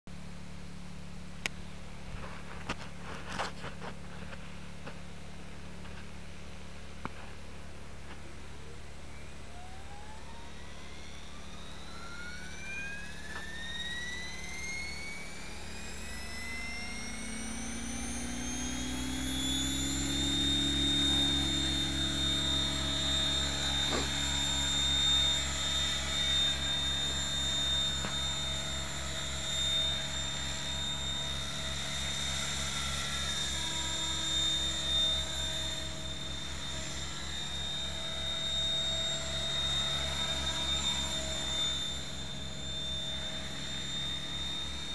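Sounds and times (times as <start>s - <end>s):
helicopter motor whine: 2.0s - 44.9s.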